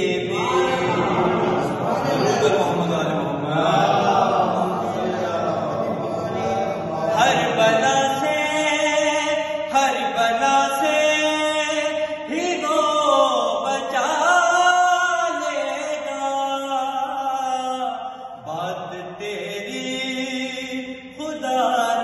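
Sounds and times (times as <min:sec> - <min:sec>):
man chanting devotional poem: 0:00.0 - 0:22.0.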